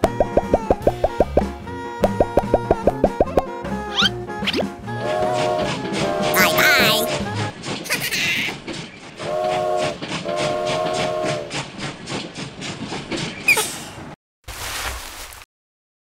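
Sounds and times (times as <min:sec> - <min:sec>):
toy train whistle blasts: 0:09.2 - 0:11.5.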